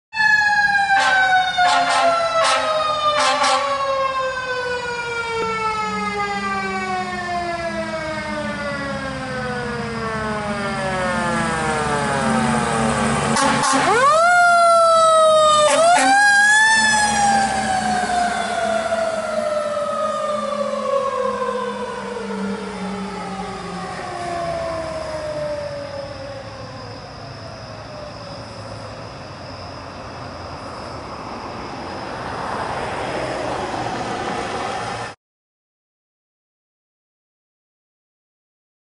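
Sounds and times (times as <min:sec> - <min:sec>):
short sharp horn blasts: 0:01.0 - 0:03.7, 0:13.3 - 0:14.0
diesel engine rumbling: 0:05.0 - 0:35.2.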